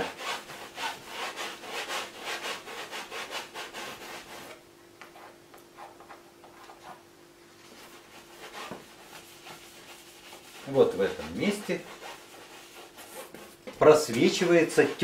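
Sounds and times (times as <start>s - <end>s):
faint steady hum: 0.0s - 15.0s
paintbrush scrubbing on canvas: 7.6s - 15.0s.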